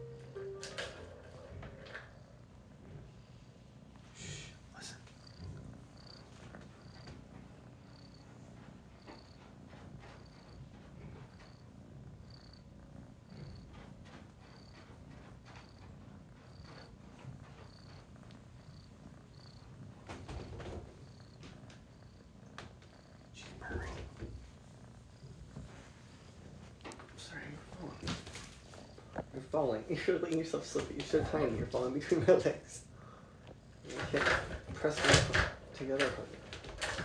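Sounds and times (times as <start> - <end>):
kitten purring: 0.0 - 37.0.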